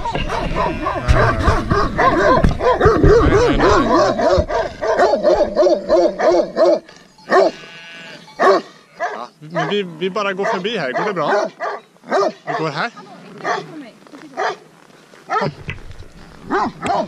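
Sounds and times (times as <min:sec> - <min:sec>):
dog barking: 0:00.0 - 0:07.6, 0:08.4 - 0:09.8, 0:10.4 - 0:12.8, 0:13.4 - 0:13.8, 0:14.4 - 0:14.6, 0:15.3 - 0:15.6, 0:16.5 - 0:17.0.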